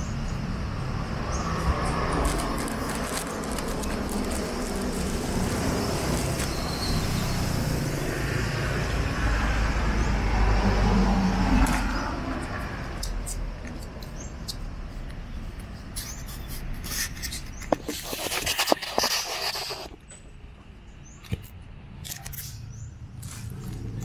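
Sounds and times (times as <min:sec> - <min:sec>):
vehicle passing by: 0:00.0 - 0:15.8
cars passing: 0:00.0 - 0:17.3.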